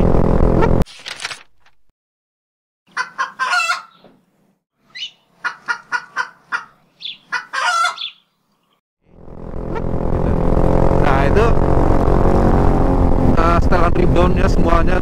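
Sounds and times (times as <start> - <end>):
chicken clucking: 2.9 - 4.0, 5.4 - 8.2.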